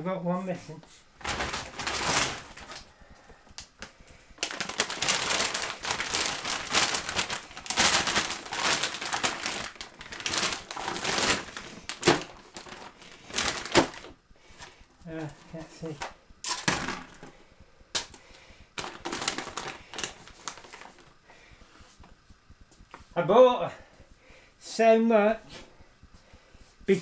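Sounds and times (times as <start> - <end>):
plastic bags crinkling: 1.2 - 2.9, 3.7 - 14.8, 15.5 - 17.4, 18.8 - 21.1.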